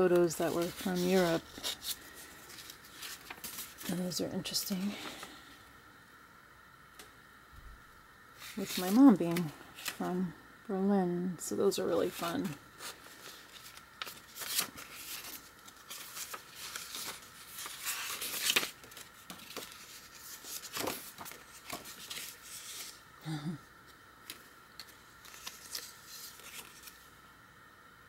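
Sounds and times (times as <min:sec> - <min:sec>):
paper pages rustling: 0:00.0 - 0:05.3, 0:08.4 - 0:10.1, 0:11.9 - 0:23.0, 0:24.2 - 0:27.1.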